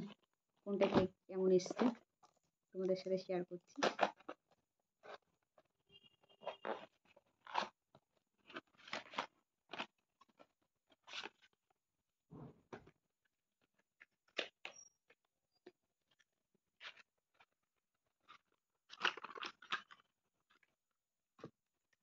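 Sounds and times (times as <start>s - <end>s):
cardboard packaging tearing and crinkling: 6.4s - 11.5s, 18.9s - 20.0s.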